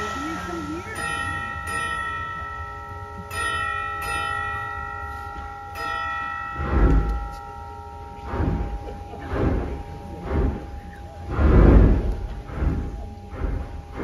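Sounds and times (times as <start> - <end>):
organ chimes bell tones: 0.0 - 10.2
heavy organ swells with low thud: 8.2 - 14.0.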